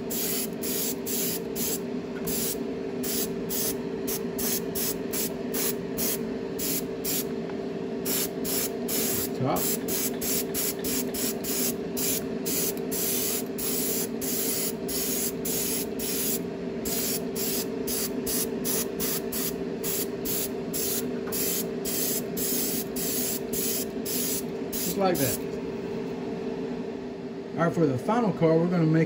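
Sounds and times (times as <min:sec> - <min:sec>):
airbrush spraying hiss: 0:00.0 - 0:07.3, 0:08.1 - 0:25.4
steady low hum: 0:00.0 - 0:29.0.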